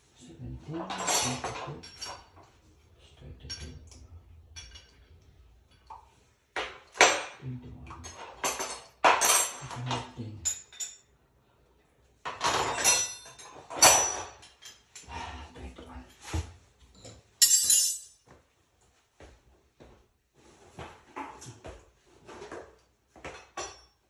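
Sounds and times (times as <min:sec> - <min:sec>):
metal tools clinking and clattering: 0:00.8 - 0:05.9, 0:06.8 - 0:11.1, 0:12.2 - 0:15.1, 0:17.0 - 0:18.2, 0:23.3 - 0:24.0.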